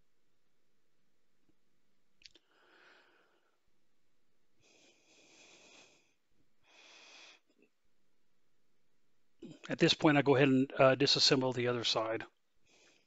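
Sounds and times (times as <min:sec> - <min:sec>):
soft breath-like hisses: 0:04.6 - 0:07.6, 0:12.6 - 0:13.0.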